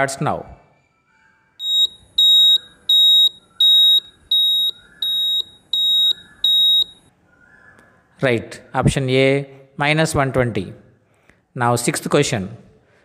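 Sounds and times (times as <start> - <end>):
short high-pitched electronic beeps: 1.6 - 7.1.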